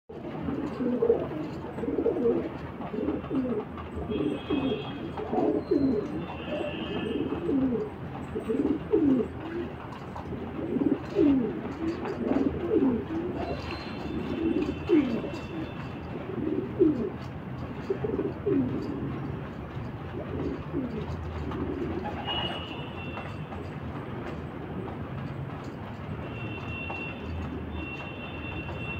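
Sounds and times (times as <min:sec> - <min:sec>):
pigeons cooing: 0:00.1 - 0:19.3, 0:20.1 - 0:22.6.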